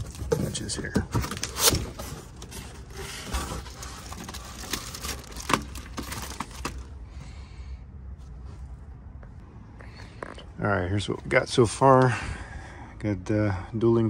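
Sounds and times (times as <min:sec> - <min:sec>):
cardboard box rustling and scraping: 0:00.0 - 0:06.9.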